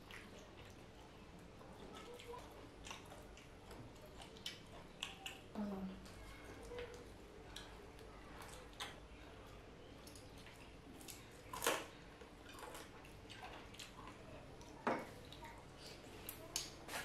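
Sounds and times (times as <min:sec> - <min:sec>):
soft chewing: 0:00.0 - 0:17.0
lip smacking: 0:01.7 - 0:05.5.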